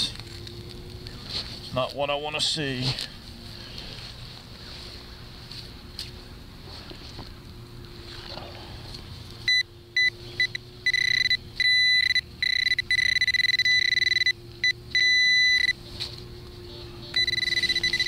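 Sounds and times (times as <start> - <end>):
metal detector beeping: 9.4 - 15.8, 17.0 - 18.0.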